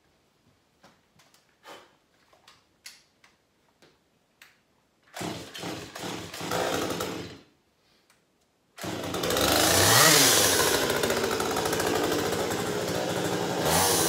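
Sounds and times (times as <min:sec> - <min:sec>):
chainsaw starting and running: 0:05.2 - 0:07.5, 0:08.8 - 0:14.0.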